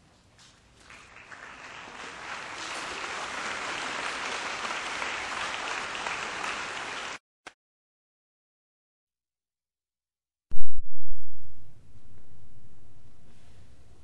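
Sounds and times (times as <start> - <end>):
audience applause: 0.8 - 7.2.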